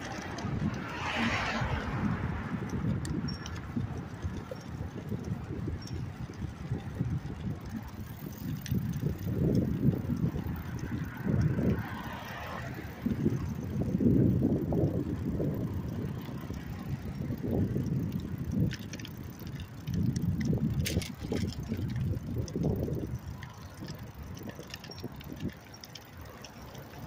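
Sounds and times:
bicycle clicks and rattles: 0.0s - 27.0s
wind and road noise rumble: 0.0s - 27.0s.

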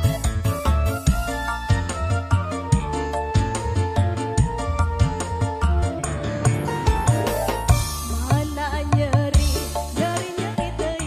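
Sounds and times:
electronic keyboard melody: 0.0s - 11.0s
drum beat: 2.6s - 9.8s.

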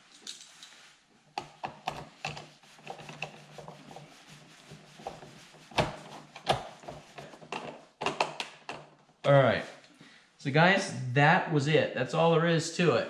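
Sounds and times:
screwdriver clicking and scraping: 1.4s - 3.4s.

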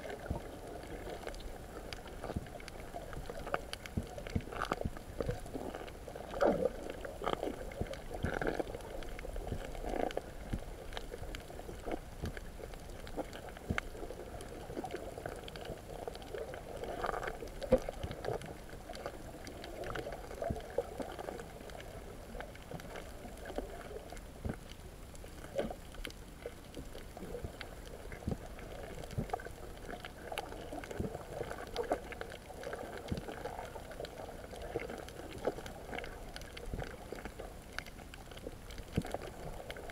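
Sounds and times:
muffled underwater wash: 0.0s - 39.9s
underwater clicks and pops: 1.1s - 16.3s.

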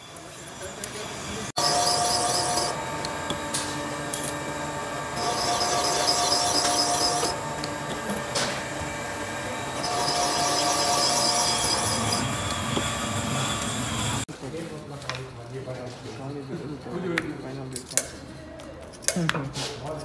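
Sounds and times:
valve seat cutter whirring: 0.2s - 14.3s.

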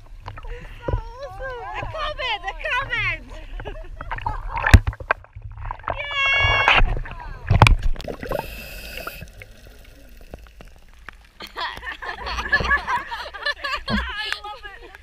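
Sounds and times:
sea water sloshing: 0.0s - 15.0s
voices chattering and laughing: 0.6s - 4.6s, 11.4s - 15.0s
underwater bubbling hiss: 8.0s - 11.4s.

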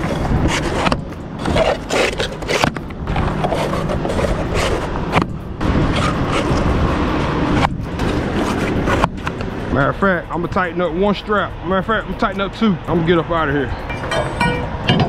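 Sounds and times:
straps scraping against steel: 0.0s - 9.5s
steady low rumble: 0.0s - 15.0s.

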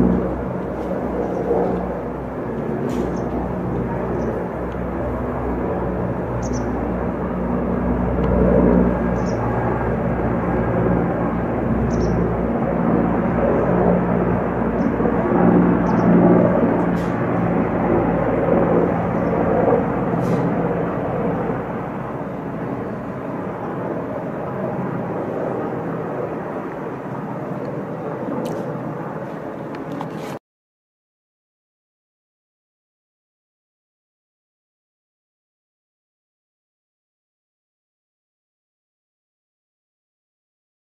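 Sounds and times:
helicopter rotor drone: 0.0s - 30.4s.

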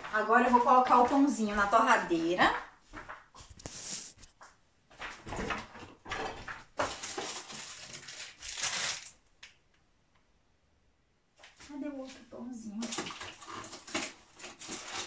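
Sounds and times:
food packages rustling and knocking: 0.0s - 9.6s, 12.8s - 15.0s.

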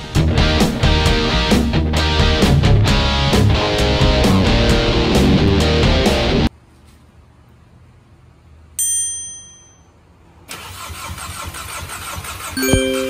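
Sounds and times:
car engine starting and running: 10.5s - 13.0s
bright chime: 12.6s - 13.0s.

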